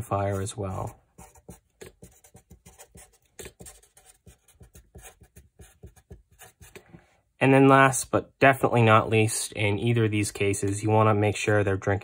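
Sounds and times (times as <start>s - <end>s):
marker scratching on paper: 0.0s - 7.0s.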